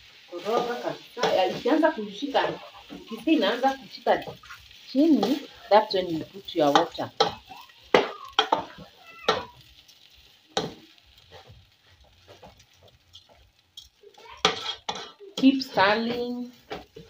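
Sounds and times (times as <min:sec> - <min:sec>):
rice sizzling: 0:00.0 - 0:17.0
wooden spoon scraping pan: 0:10.6 - 0:17.0.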